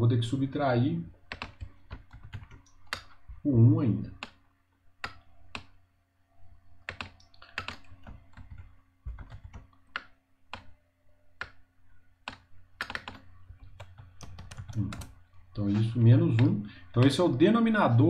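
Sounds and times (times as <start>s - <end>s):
computer keystrokes: 1.3s - 3.2s, 6.8s - 10.7s, 12.3s - 17.2s.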